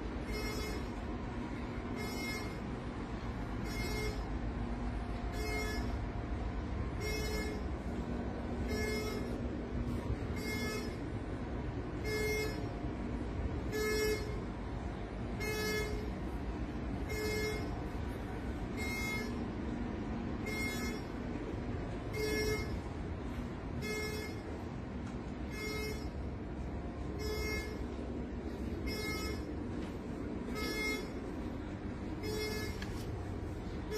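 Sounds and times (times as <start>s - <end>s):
low machinery hum: 0.0s - 33.9s
electronic alarm beeping: 0.2s - 6.2s, 6.8s - 11.4s, 12.0s - 12.7s, 13.6s - 14.5s, 15.3s - 16.3s, 17.0s - 18.0s, 18.6s - 19.6s, 20.4s - 21.4s, 22.0s - 23.0s, 23.8s - 24.8s, 25.4s - 33.9s.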